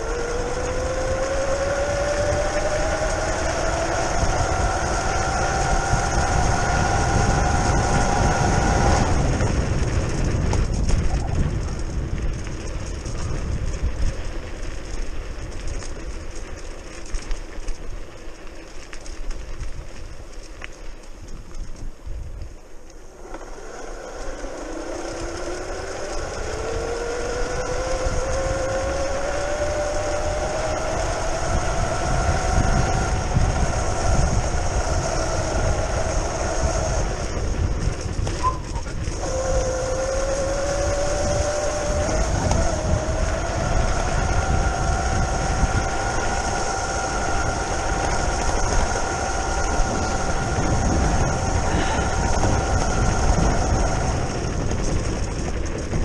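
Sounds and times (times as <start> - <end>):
electric scooter motor whining: 0.0 - 56.0
tyres and wind rumble: 0.0 - 56.0.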